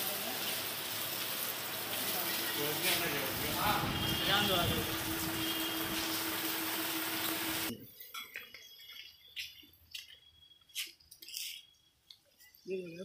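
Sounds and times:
machine hum: 3.3 - 7.7.

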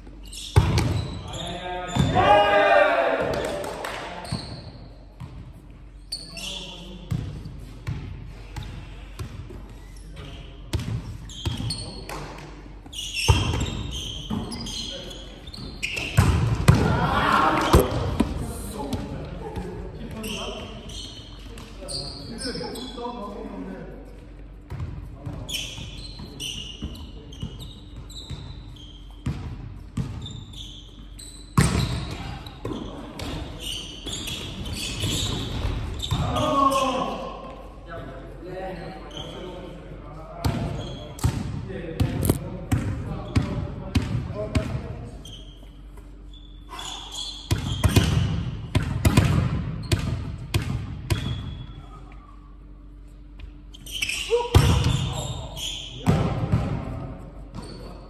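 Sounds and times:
volleyball smacks echoing in gym: 0.5 - 1.3, 3.1 - 4.2, 10.6 - 14.5, 15.8 - 20.2, 31.5 - 33.6, 40.4 - 45.0, 47.4 - 51.4, 54.3 - 55.4, 56.0 - 57.6.

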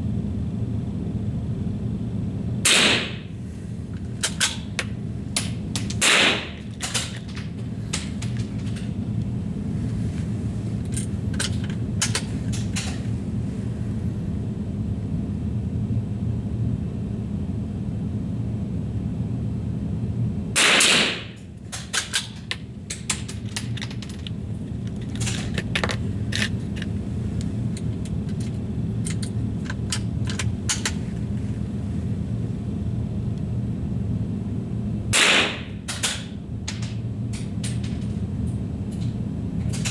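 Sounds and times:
low hum: 0.0 - 20.6, 21.3 - 39.9
rifle shots with ringing tail: 2.7 - 3.3, 6.0 - 6.6, 20.6 - 21.3, 35.2 - 35.7.

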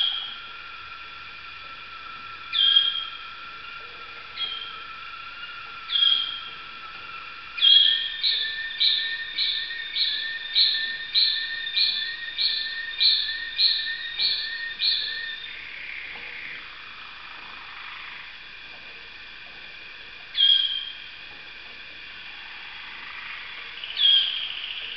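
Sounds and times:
canary singing: 0.0 - 0.5, 2.4 - 16.1, 20.3 - 21.1, 23.1 - 24.9.

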